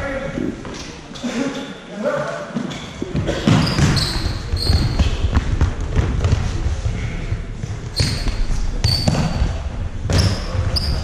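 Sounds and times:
footsteps echoing in hall: 2.3s - 11.0s
shoe squeaking on floor: 2.6s - 5.3s, 7.9s - 11.0s.

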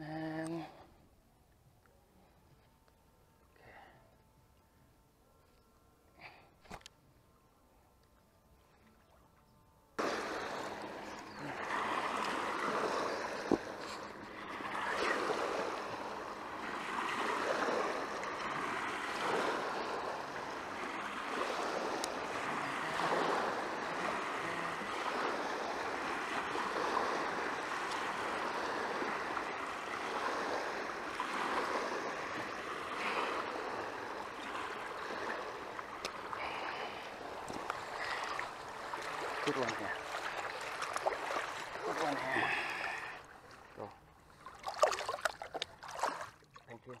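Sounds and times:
waves washing against rocky shore: 10.0s - 43.9s.

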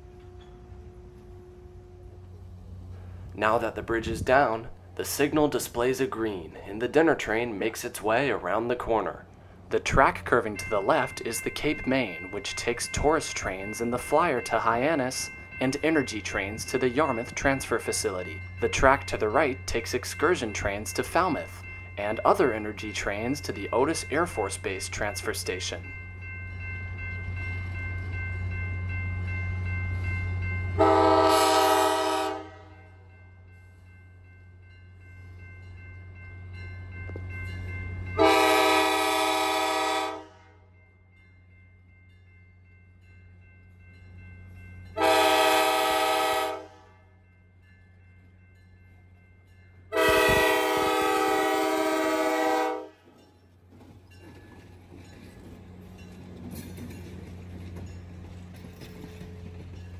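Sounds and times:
low drone of locomotive engine: 0.0s - 59.9s
locomotive air horn blasts: 30.8s - 32.8s, 38.2s - 40.6s, 45.0s - 47.0s, 49.9s - 53.0s.

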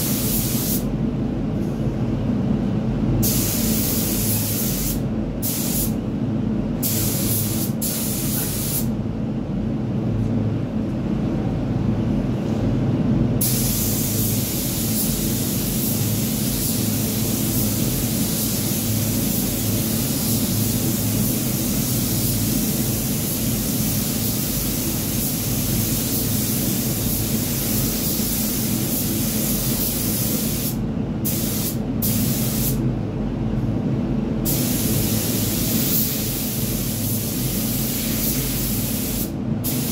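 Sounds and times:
air extraction drone: 0.0s - 39.9s
paint spray gun hissing: 13.4s - 32.8s, 34.5s - 39.9s.

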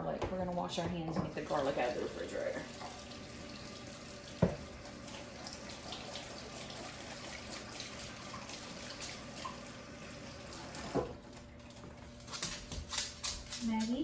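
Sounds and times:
faucet running: 1.0s - 12.0s.

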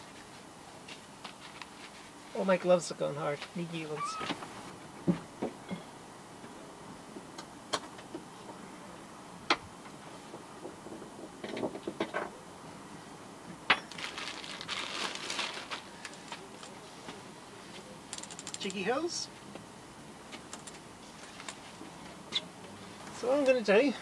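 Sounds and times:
plastic hose rustling and clattering: 13.8s - 16.8s.

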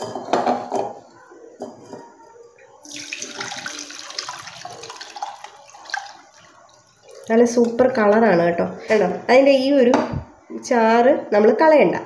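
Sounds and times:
liquid pouring and splashing: 2.8s - 7.9s.

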